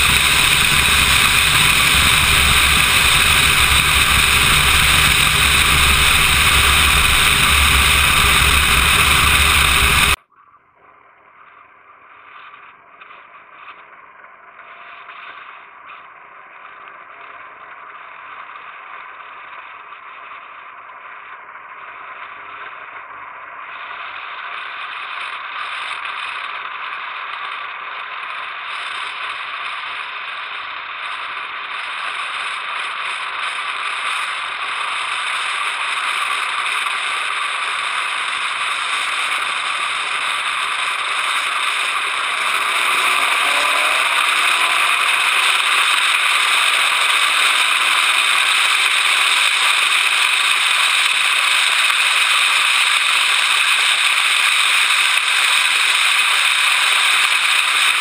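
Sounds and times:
car wind and road noise: 0:00.0 - 0:10.2, 0:35.0 - 0:50.7.

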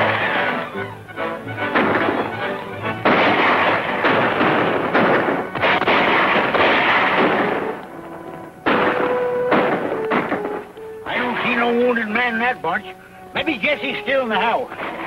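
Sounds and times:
background music: 0:00.0 - 0:15.0
echoing gunshots: 0:01.6 - 0:07.8, 0:08.6 - 0:10.8.

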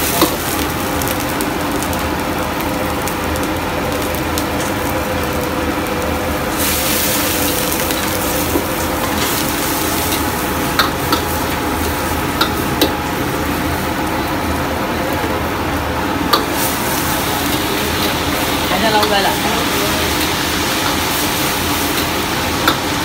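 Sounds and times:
food sizzling in a wok: 0:00.0 - 0:23.0
steady hum: 0:00.0 - 0:23.0.

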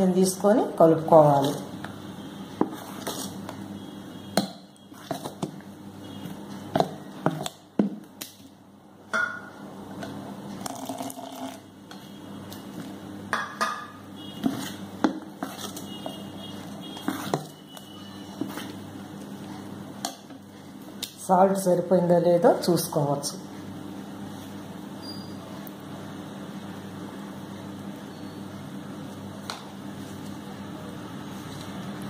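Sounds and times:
spoon stirring batter in steel bowl: 0:01.0 - 0:03.7, 0:04.4 - 0:08.0, 0:14.2 - 0:21.1.

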